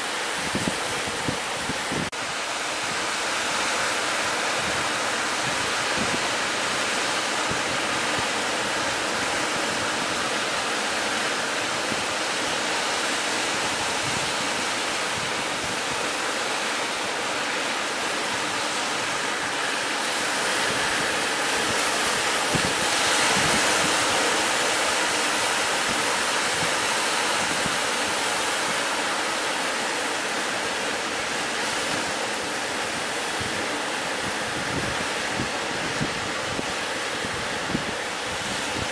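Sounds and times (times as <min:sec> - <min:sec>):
wind blowing on microphone: 0:00.0 - 0:17.4, 0:18.2 - 0:38.9
sea waves and surf: 0:00.0 - 0:38.9.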